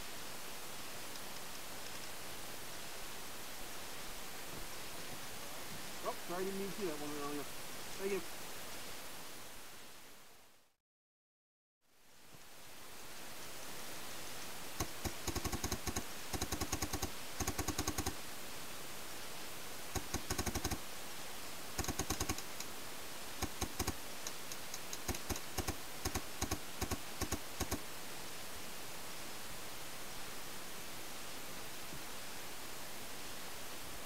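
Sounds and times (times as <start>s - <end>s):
steady hiss: 0.0s - 10.7s, 11.8s - 34.0s.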